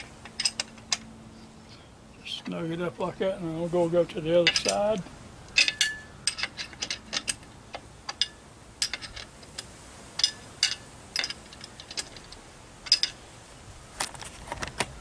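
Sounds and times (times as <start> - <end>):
wrench clicking on bolts: 4.4 - 13.2.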